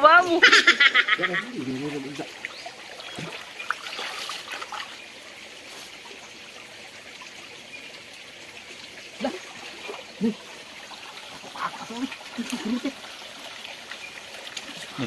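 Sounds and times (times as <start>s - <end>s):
stream trickling: 0.0s - 15.0s
faint splashes of hands in water: 2.4s - 5.0s.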